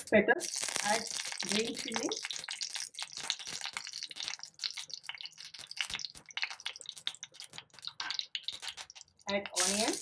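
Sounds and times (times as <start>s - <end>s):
hot oil sizzling and spattering: 0.0s - 10.0s
mustard seeds spluttering: 8.3s - 10.0s.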